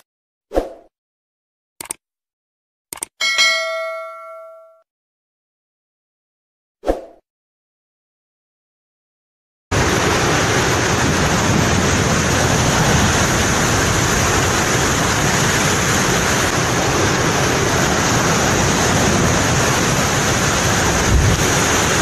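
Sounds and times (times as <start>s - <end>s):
waves crashing on rocks: 9.8s - 22.0s.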